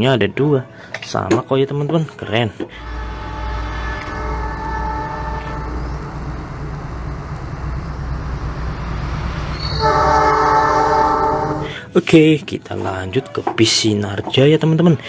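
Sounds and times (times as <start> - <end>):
train horn blast: 2.7 - 11.9
diesel locomotive engine rumbling: 2.7 - 12.8.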